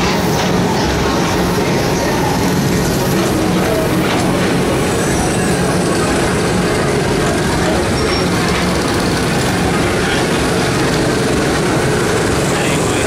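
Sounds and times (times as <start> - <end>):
train rolling on track: 0.0 - 13.0.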